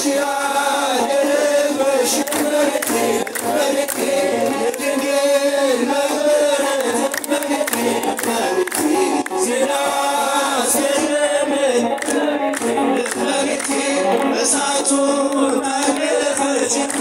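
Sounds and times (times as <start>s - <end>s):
crowd singing a hymn: 0.0s - 17.0s
hand clapping: 2.2s - 5.0s, 6.6s - 10.0s, 11.9s - 17.0s.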